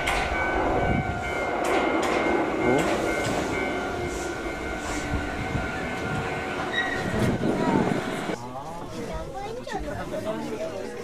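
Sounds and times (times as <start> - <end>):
train running rumble: 0.0 - 8.4
train wheels clacking: 0.0 - 8.4
train brakes squealing: 0.3 - 7.4.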